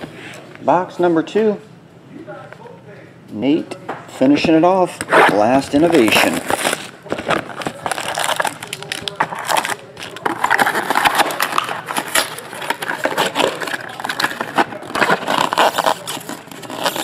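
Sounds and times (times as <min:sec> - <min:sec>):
plastic wrappers crinkling: 0:05.6 - 0:17.0.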